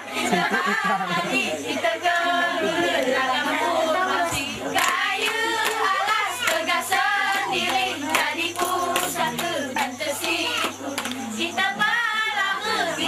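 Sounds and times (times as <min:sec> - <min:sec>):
girls singing in chorus: 0:00.0 - 0:13.0
sharp hand claps: 0:04.8 - 0:06.7, 0:07.5 - 0:11.3.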